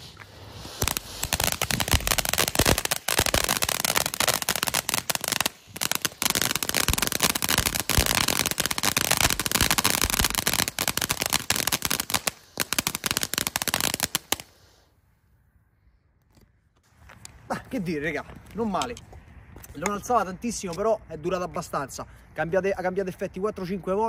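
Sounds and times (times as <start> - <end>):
firework crackling: 0.0 - 14.9.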